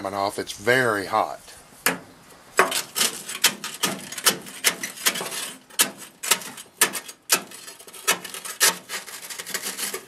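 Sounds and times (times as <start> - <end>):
grill scraper scraping: 2.6 - 10.0.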